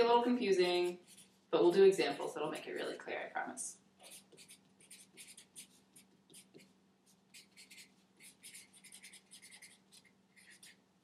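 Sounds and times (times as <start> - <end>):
low electrical hum: 0.0 - 11.0
scratchy handwriting on board: 4.0 - 6.7, 7.3 - 10.8.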